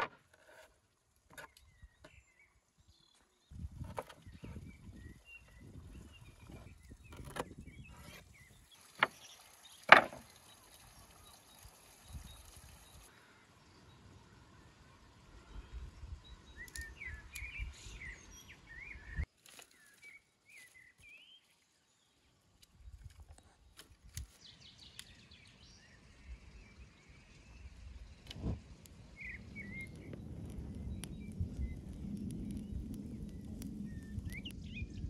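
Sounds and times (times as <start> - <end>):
songbirds chirping: 1.3 - 35.0
twigs clicking and snapping: 16.6 - 17.5, 19.3 - 21.1, 22.6 - 25.2, 29.6 - 34.6
wood fire crackling: 27.4 - 35.0.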